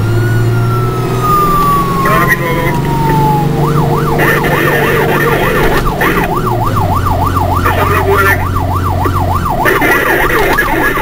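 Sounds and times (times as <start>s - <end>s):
fire engine siren yelping: 0.0s - 11.0s
truck engine running: 0.0s - 11.0s.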